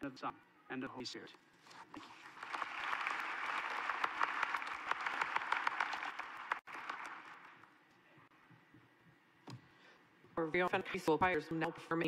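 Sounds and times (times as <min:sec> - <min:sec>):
audience applauding: 0:02.0 - 0:07.7.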